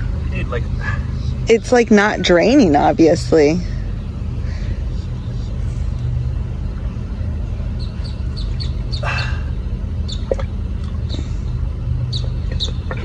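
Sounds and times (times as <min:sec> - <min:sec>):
low engine hum: 0:00.0 - 0:13.0
high bird chirps: 0:07.7 - 0:10.5, 0:12.1 - 0:13.0.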